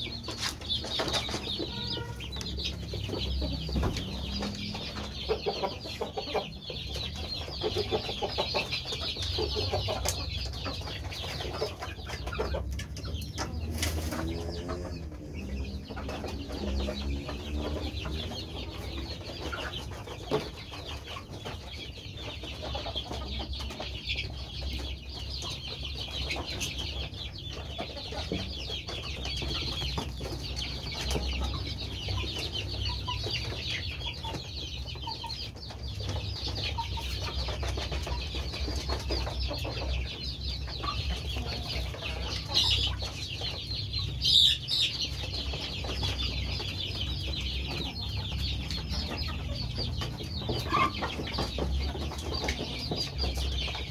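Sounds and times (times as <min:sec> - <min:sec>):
chickens peeping and clucking: 0:00.0 - 0:53.9
drawn-out chicken call: 0:01.2 - 0:06.5.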